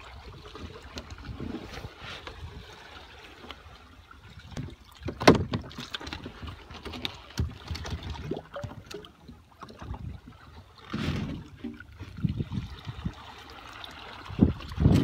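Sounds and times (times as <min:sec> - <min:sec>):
water slapping against hull: 0:00.0 - 0:15.0
knocks on kayak hull: 0:05.1 - 0:05.8.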